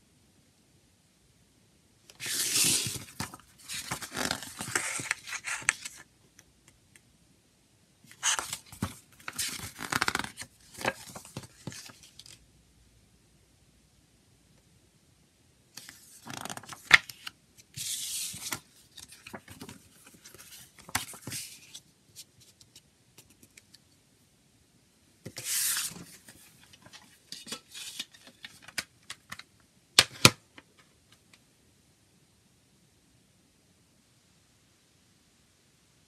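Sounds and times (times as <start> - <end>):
paper rustling and sliding: 2.2 - 6.0, 8.1 - 12.4, 15.8 - 21.8, 25.3 - 28.8.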